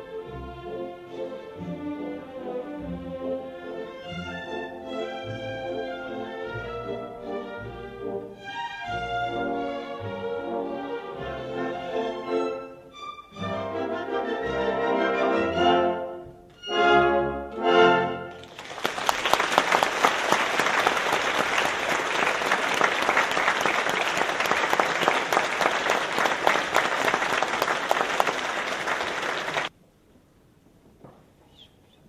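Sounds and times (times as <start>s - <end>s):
orchestra playing loud chords: 0.0s - 18.6s
audience applauding: 18.3s - 29.7s.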